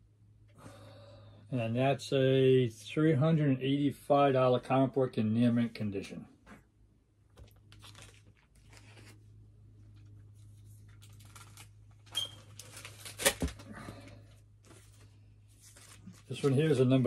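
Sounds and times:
plastic bags rustling: 0:09.9 - 0:17.0.

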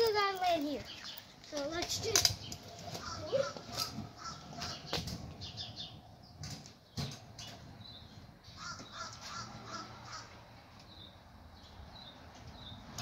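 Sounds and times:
crow cawing: 0:08.6 - 0:10.4.

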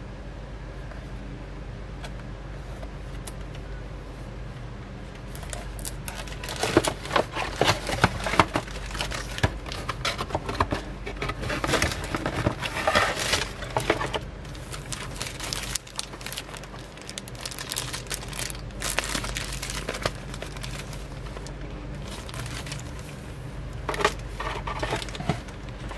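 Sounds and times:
plastic wrapping crinkling: 0:05.3 - 0:25.9.

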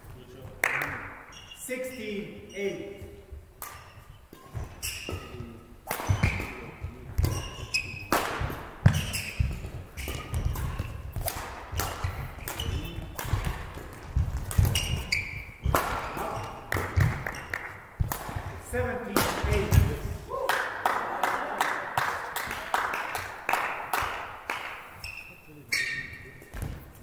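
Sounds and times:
shoe soles squeaking: 0:01.3 - 0:18.9, 0:24.8 - 0:27.0
rackets striking shuttlecock: 0:03.6 - 0:20.1
thudding footsteps on court: 0:06.1 - 0:20.2.

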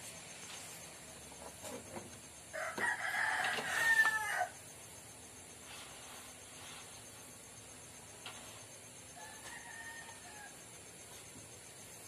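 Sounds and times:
rooster crowing: 0:02.5 - 0:04.6, 0:09.1 - 0:10.8.

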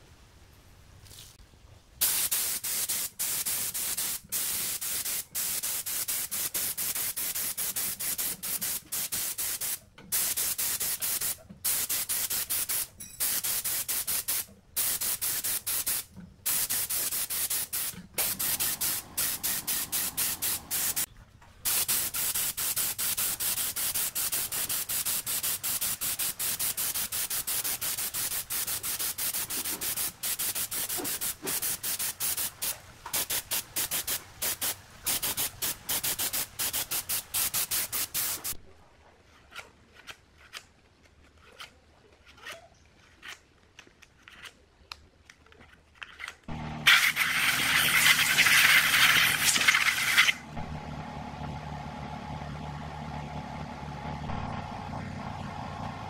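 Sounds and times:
air spray gun hissing: 0:02.0 - 0:21.1, 0:21.7 - 0:38.6, 0:46.8 - 0:50.5.

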